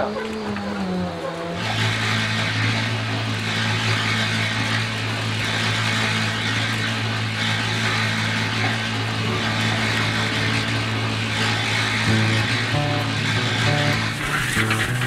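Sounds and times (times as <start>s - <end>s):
cement mixer running: 0.0s - 15.0s.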